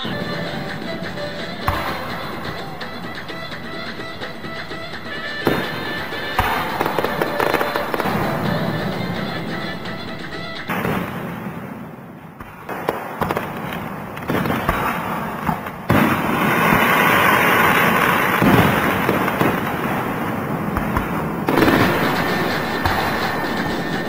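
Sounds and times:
fireworks popping and crackling: 0.0 - 9.3, 10.6 - 24.0
music playing: 0.0 - 10.9, 21.5 - 24.0.

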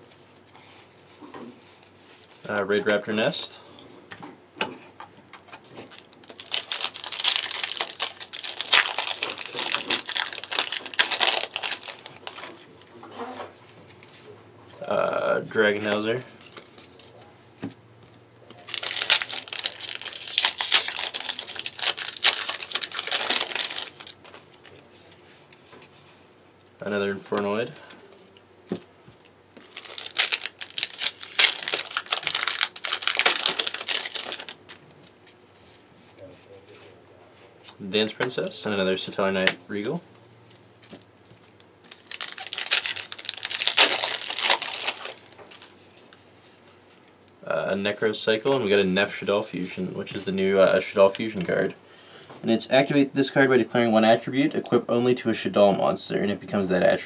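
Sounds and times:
foil wrapper crinkling: 5.8 - 12.9, 18.5 - 24.9, 29.6 - 34.8, 40.8 - 45.8.

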